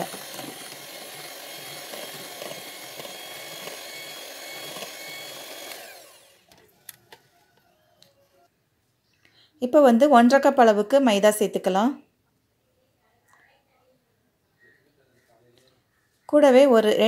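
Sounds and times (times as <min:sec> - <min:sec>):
electric hand mixer whipping batter: 0:00.0 - 0:07.2.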